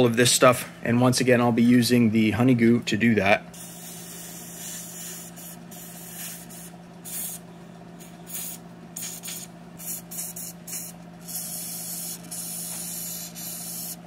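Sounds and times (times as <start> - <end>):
aerosol spray hissing: 3.6 - 7.4, 8.3 - 14.0.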